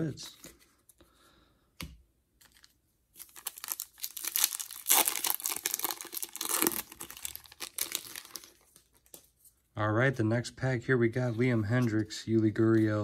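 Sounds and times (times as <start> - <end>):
foil wrapper tearing and crinkling: 2.5 - 8.8.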